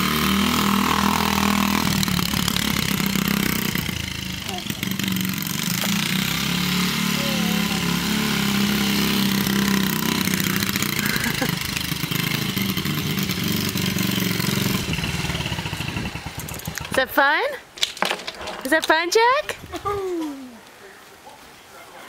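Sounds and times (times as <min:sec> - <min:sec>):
dirt bike engine running: 0:00.0 - 0:17.4.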